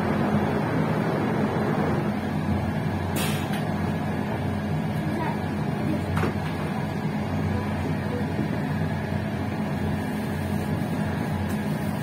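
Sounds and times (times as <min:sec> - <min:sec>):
constant low hum: 0:00.0 - 0:12.0
train rumbling: 0:00.0 - 0:12.0.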